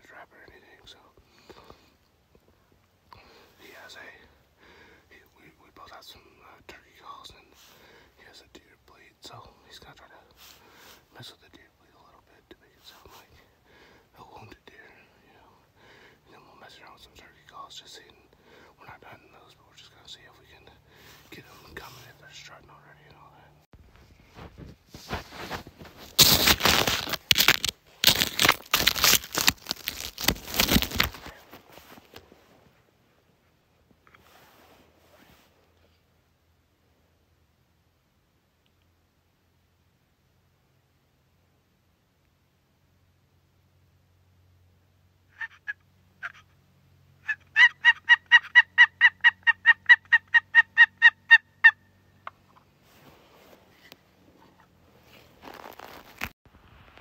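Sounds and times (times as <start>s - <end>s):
faint rustling: 19.0s - 33.0s, 33.9s - 36.1s, 52.4s - 57.0s
jacket fabric rustling: 24.2s - 32.6s, 54.4s - 56.4s
turkey call yelps: 45.3s - 46.5s, 47.2s - 52.4s.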